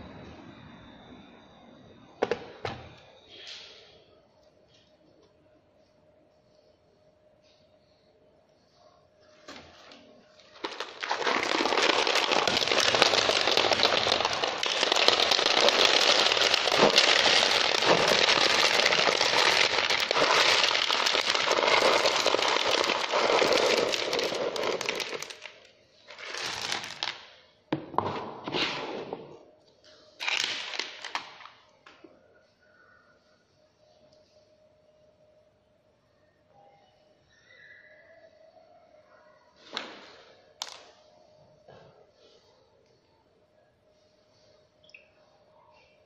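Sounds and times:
small stones pouring and rattling: 10.6 - 27.2.

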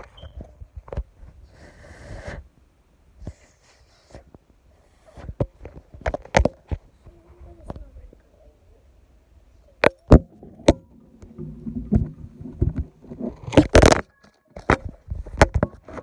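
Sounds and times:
phone rustling: 9.9 - 16.0.

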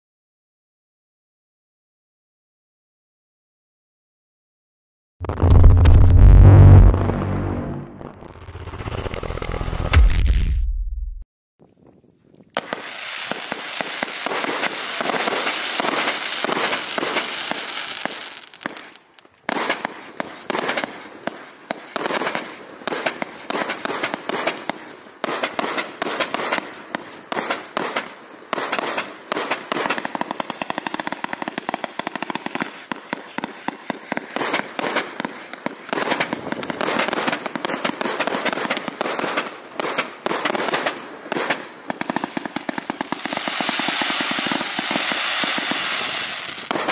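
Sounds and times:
firework launch thumps: 5.2 - 8.8
firework rushing noise: 5.2 - 10.7.

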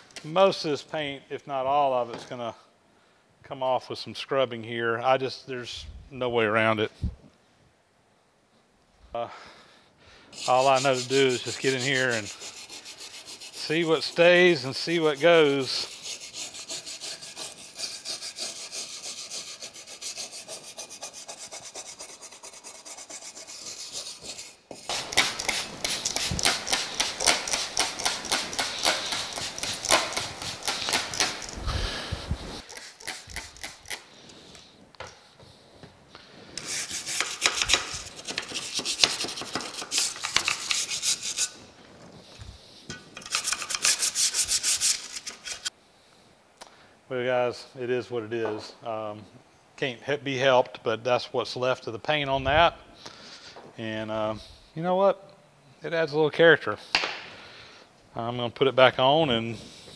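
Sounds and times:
scrub brush scrubbing metal: 10.3 - 31.6, 32.6 - 34.0, 36.6 - 41.6, 42.9 - 45.7.

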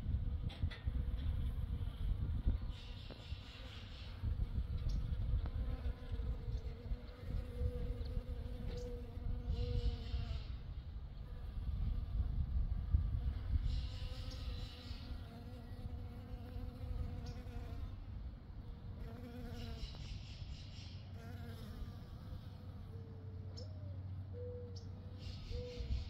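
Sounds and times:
bee buzzing: 3.1 - 18.1, 18.8 - 20.0, 21.1 - 23.2.

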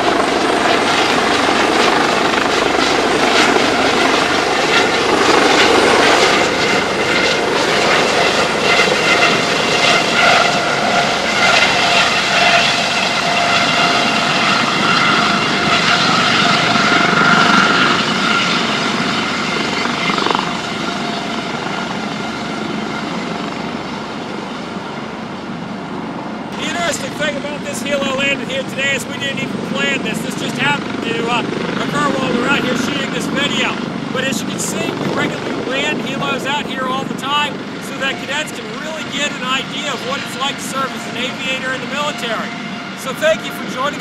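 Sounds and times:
helicopter engine and rotor: 0.0 - 44.0.

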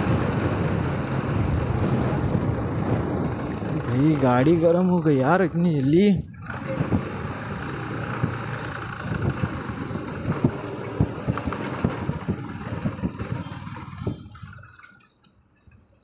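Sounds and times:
motorcycle engine running: 0.0 - 4.6, 6.3 - 14.8
knocks and rattles: 8.1 - 15.9.

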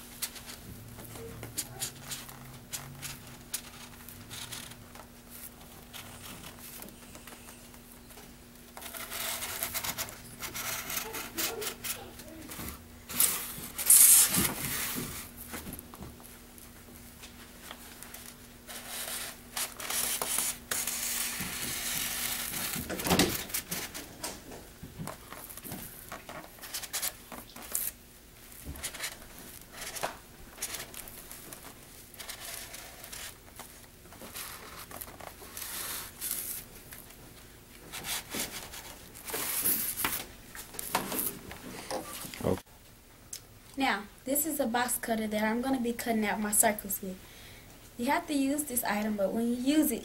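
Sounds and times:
marker scratching on foam board: 8.8 - 12.1.

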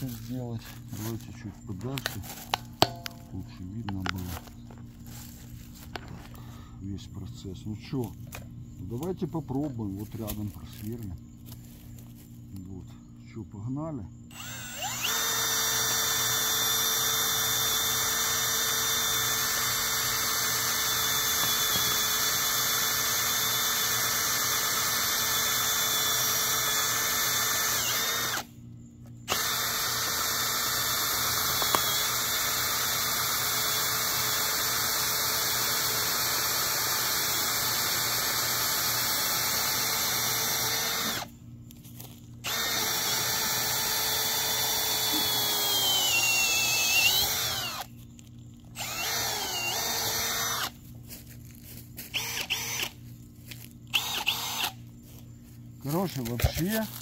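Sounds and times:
power drill motor whine: 14.3 - 28.6, 29.2 - 41.3, 42.4 - 48.0, 48.7 - 50.8, 52.1 - 53.0, 53.9 - 54.8.

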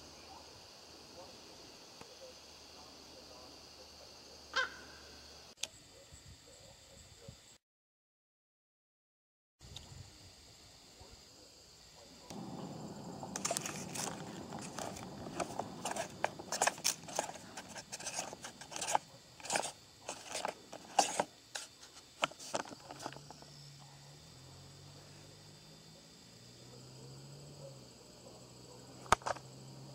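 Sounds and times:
rustling scrape: 12.3 - 23.3.

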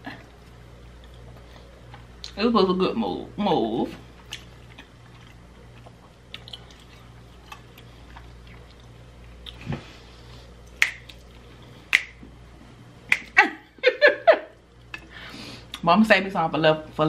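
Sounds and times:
chewing soft food: 0.2 - 2.4, 4.0 - 12.2
wet mouth clicks: 10.7 - 11.3, 11.9 - 12.2, 13.1 - 13.4.

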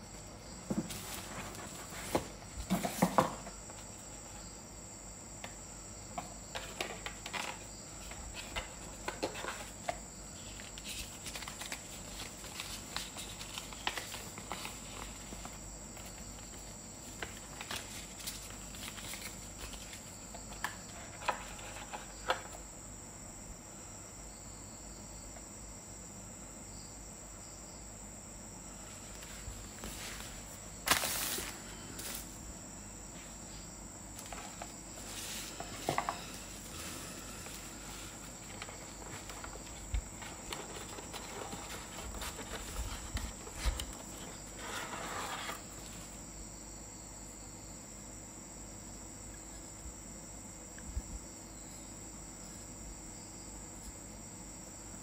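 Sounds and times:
steady hiss: 28.5 - 46.3.

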